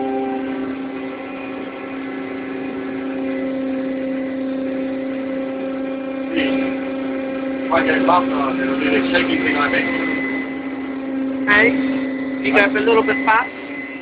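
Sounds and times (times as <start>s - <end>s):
crane machinery humming: 0.0s - 14.0s.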